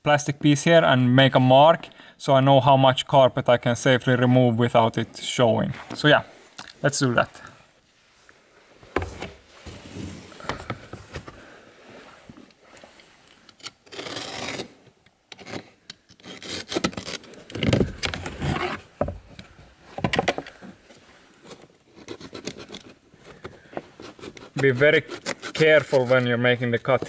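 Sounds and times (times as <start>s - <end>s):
hands rubbing plastic panel: 22.0s - 27.0s.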